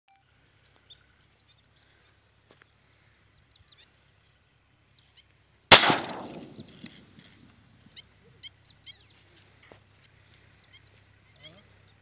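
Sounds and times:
shotgun shot: 5.7 - 7.0
faint bird chirps: 6.2 - 12.0.

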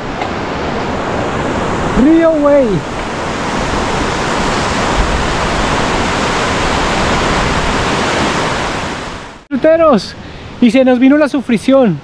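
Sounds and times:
river water rushing: 0.0 - 9.5.

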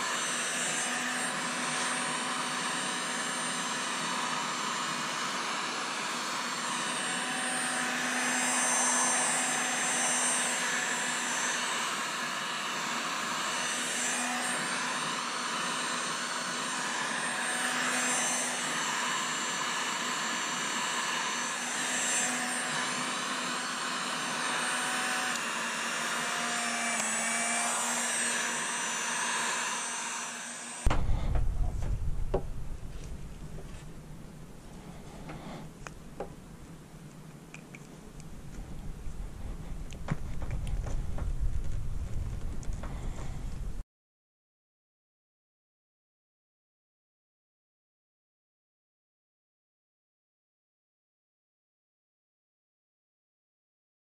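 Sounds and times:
heat gun blowing air: 0.0 - 36.3.

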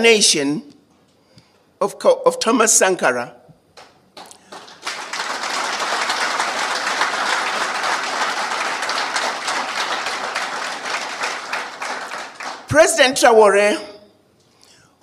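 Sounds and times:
audience applauding: 4.2 - 12.8.

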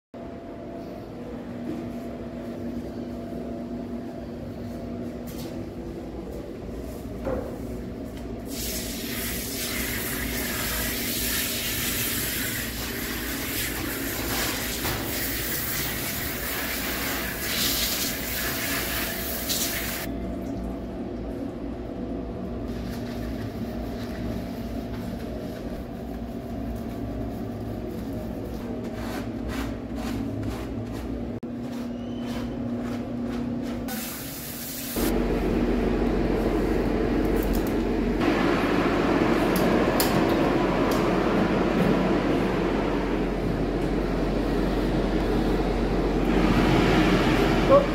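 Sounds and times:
steady low hum: 0.2 - 8.5, 35.0 - 47.9.

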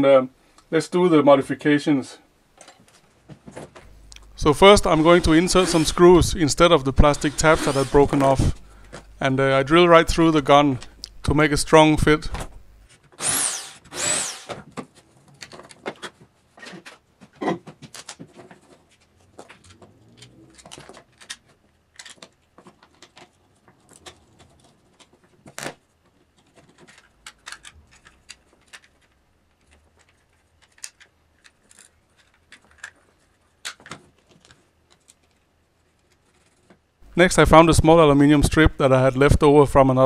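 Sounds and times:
plastic parts clicking and knocking: 14.5 - 36.9.

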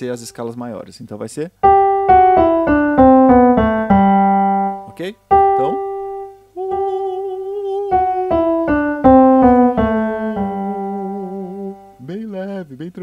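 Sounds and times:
electric piano: 1.6 - 12.0
man singing a descending scale: 6.5 - 13.0.

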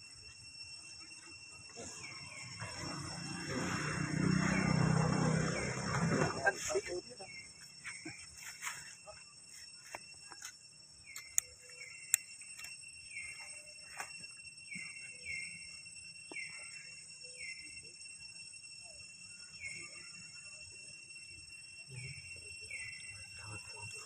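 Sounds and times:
insects droning: 0.0 - 24.0
sharp clicks: 11.1 - 12.7.

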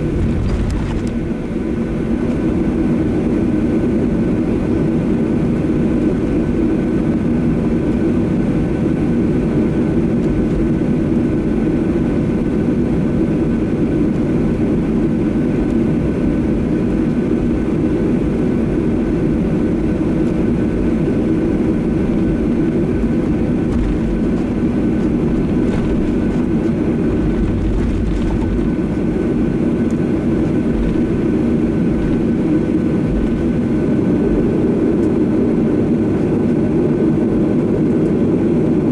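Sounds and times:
low rumble: 0.0 - 2.7, 22.9 - 29.5
jet engines idling: 0.0 - 38.9.

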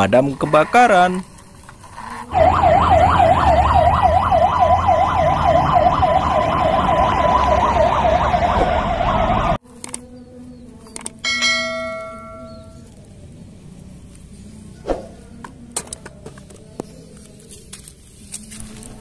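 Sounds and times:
engine rumble: 1.6 - 9.6
fire engine siren yelping: 2.3 - 9.6.

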